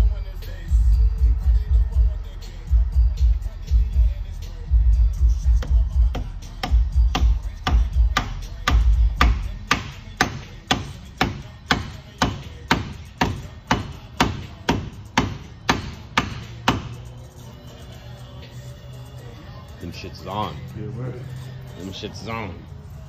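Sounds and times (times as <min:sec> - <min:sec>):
hammer striking metal: 0:06.6 - 0:17.0.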